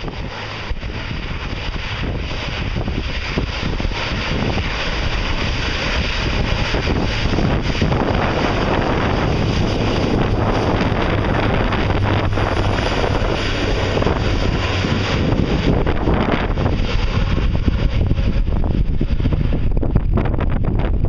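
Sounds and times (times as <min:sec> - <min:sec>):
turboprop engines at takeoff: 0:00.0 - 0:21.0
wind buffeting microphone: 0:00.0 - 0:21.0.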